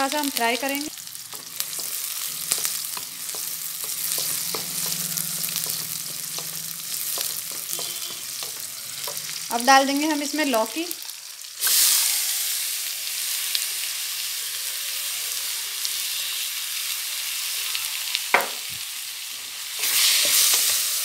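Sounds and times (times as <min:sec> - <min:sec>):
food sizzling in hot oil: 0:00.0 - 0:21.0
wooden spatula stirring pan: 0:01.2 - 0:09.5
brief knock: 0:18.4 - 0:18.6.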